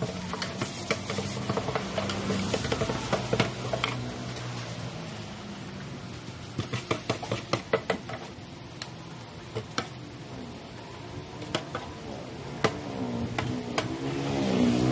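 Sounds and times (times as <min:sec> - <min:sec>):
metal spatulas scraping a wok: 0:00.0 - 0:04.7
passing vehicle engine: 0:01.2 - 0:06.2, 0:10.8 - 0:14.9.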